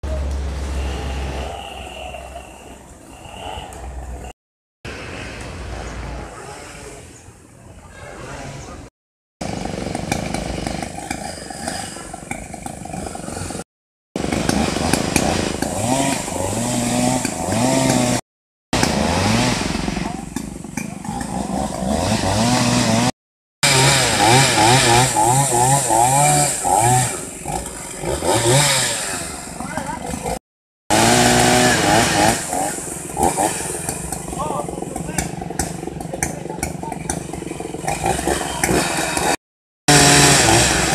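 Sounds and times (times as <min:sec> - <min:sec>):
chainsaw revving: 0:09.4 - 0:18.2, 0:18.8 - 0:40.9.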